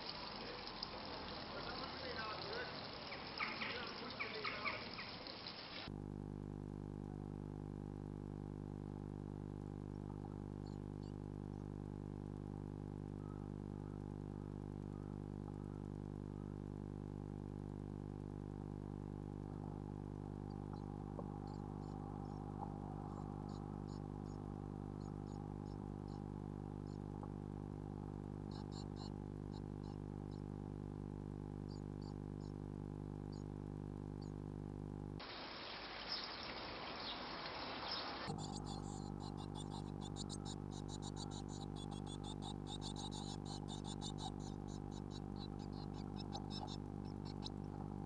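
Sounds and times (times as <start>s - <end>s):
nestlings peeping: 0.0s - 5.9s, 20.4s - 27.4s, 28.4s - 30.5s, 35.2s - 48.0s
low electrical hum: 0.0s - 48.0s
nestlings cheeping: 36.0s - 48.0s.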